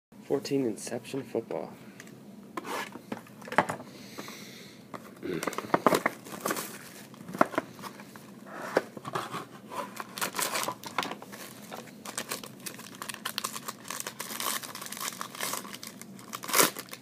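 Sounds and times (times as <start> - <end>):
plastic wrapping crinkling and tearing: 5.3 - 8.0, 9.8 - 17.0.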